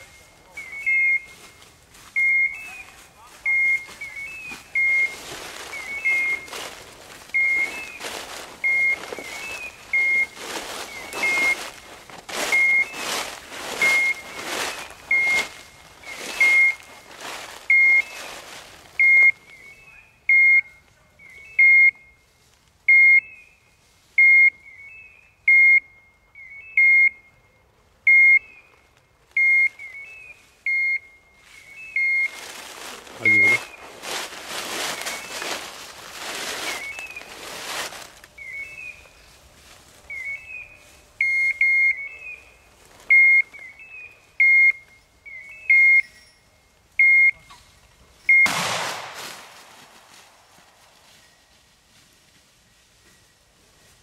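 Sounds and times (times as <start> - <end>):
rustling: 2.8 - 19.6, 31.4 - 41.6, 47.6 - 54.0.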